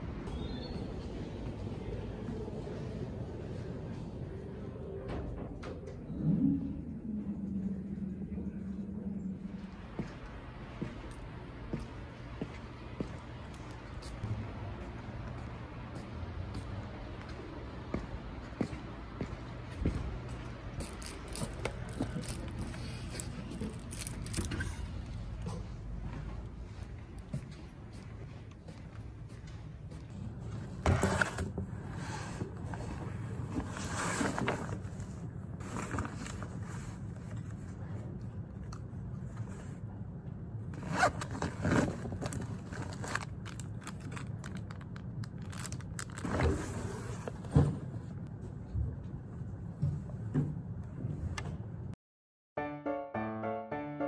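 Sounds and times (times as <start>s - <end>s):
low room hum: 0.0s - 52.0s
scraping and rustling handling noises: 20.8s - 25.7s.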